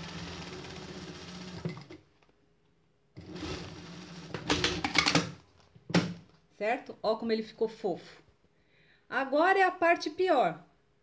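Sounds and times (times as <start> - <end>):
sewing machine stitching: 0.0 - 2.0, 3.2 - 5.1.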